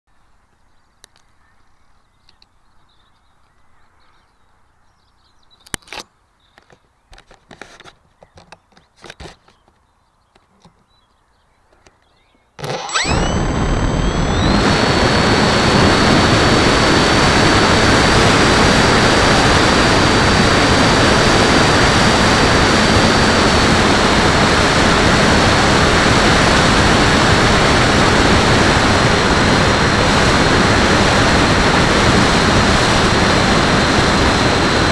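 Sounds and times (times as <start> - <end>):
electric motor whine: 12.6 - 34.9
propeller wash and wind: 12.6 - 34.9.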